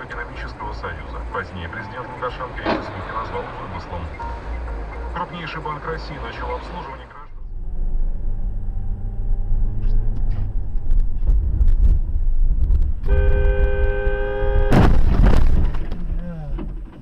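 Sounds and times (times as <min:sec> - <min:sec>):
car driving rumble: 0:00.0 - 0:17.0
car horn blaring: 0:13.0 - 0:15.2
loud crash of vehicles: 0:14.6 - 0:16.0.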